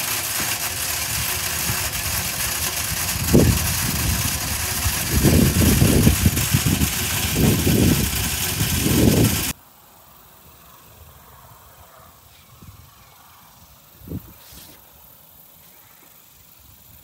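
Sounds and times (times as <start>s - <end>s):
low rumbles: 0.0s - 9.5s
fish feeder motor hiss: 0.0s - 9.6s.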